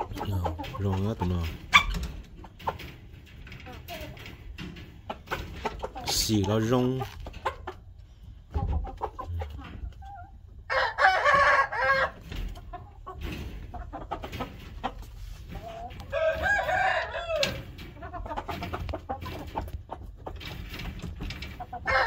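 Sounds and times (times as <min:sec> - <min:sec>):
rooster crowing: 0:16.1 - 0:17.6.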